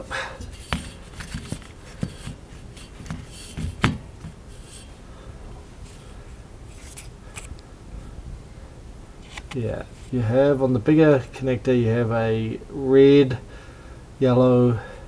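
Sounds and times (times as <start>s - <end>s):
camera handling clicks and rubbing: 0.4s - 4.9s, 6.7s - 7.6s, 9.2s - 10.1s.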